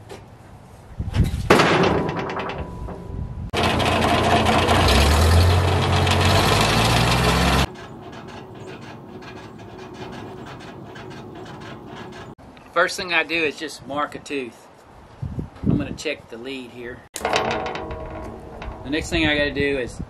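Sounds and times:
log thumping on steel carriage: 1.5 - 12.4, 17.2 - 19.2.

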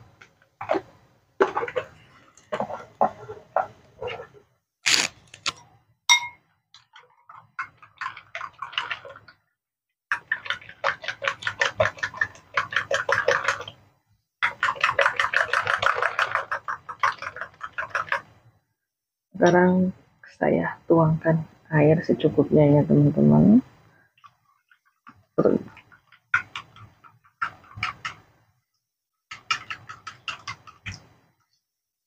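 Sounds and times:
spoon beating eggs in a bowl: 29.3 - 31.1.

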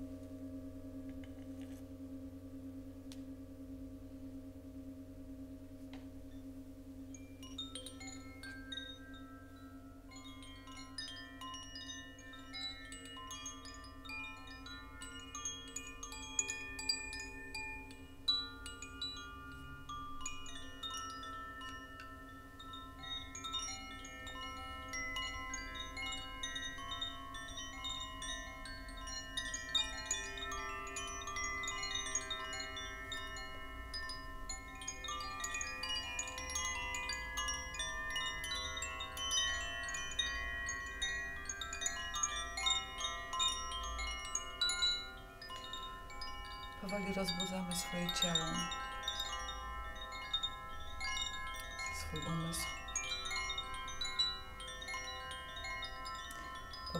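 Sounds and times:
tinkling chimes: 0.0 - 56.9.

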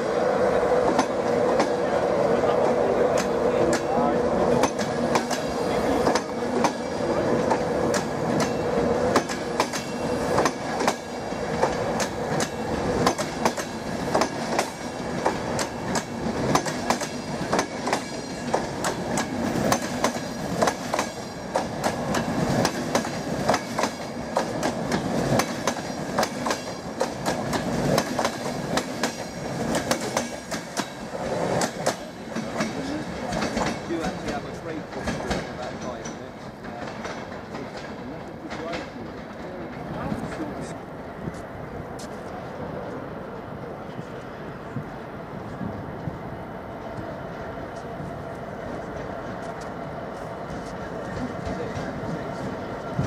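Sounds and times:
train wheels rumbling on rail: 0.0 - 53.0
wheels clicking over rail joints: 2.6 - 40.5.

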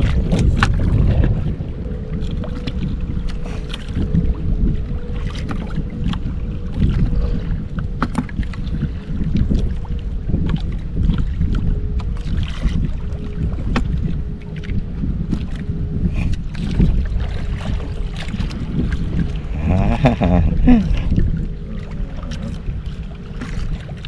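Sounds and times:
water lapping against boat hull: 0.0 - 24.0
wind buffeting microphone: 0.0 - 24.0.

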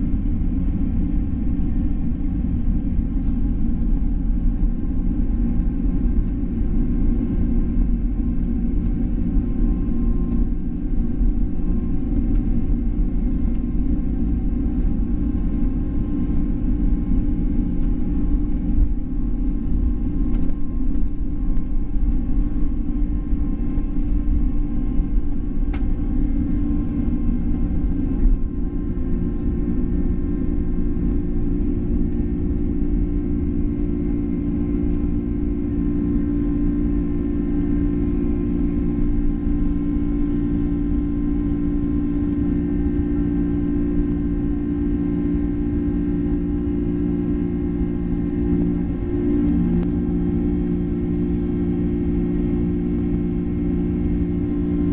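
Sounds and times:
jet engines roaring from cabin: 0.0 - 54.9
rumble of takeoff roll: 0.0 - 54.9.

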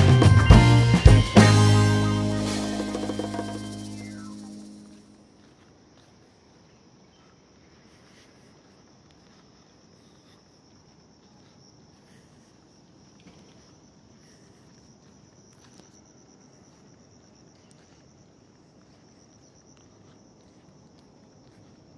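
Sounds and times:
insect trilling: 0.1 - 5.2.

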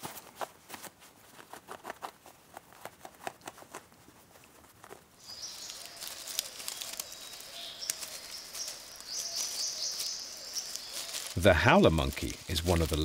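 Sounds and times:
monkey rustling on bark and twigs: 0.0 - 13.0
birds chirping: 5.2 - 13.0.

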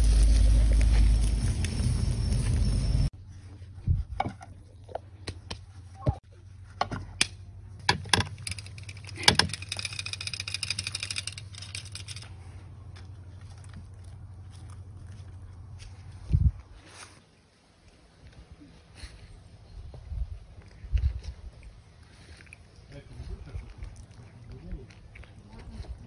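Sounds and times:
loud rush of noise: 0.0 - 3.1
wire grill basket clicking and clanking: 7.9 - 12.3.

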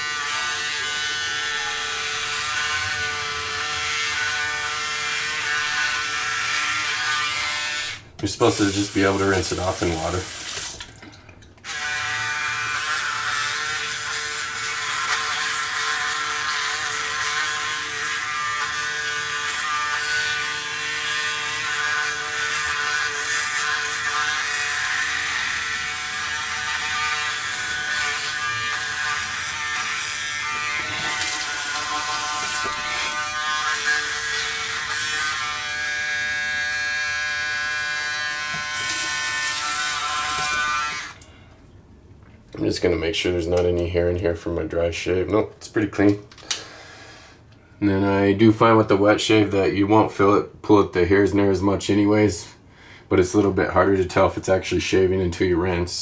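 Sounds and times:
electric shaver buzzing: 0.0 - 10.7, 11.6 - 41.2.

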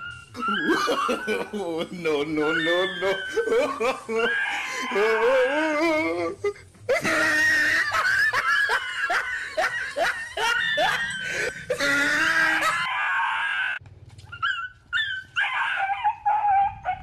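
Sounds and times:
dog yelping: 0.0 - 1.4, 7.4 - 17.0
dog whining: 0.0 - 1.5, 2.4 - 6.2, 7.0 - 17.0.

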